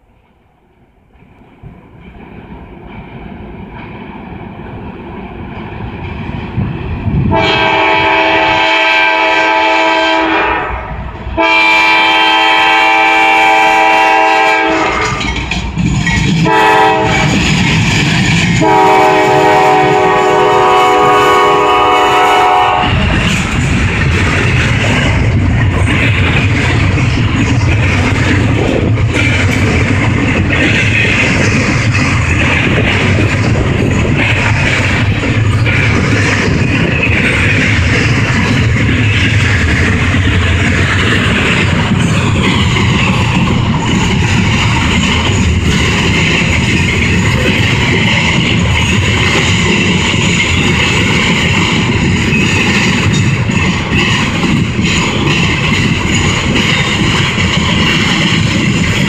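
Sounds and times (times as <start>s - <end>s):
freight train rumble: 0.0s - 59.0s
train wheels clickety-clack: 1.0s - 59.0s
locomotive air horn blasts: 7.3s - 15.2s, 16.4s - 17.2s, 18.6s - 23.0s.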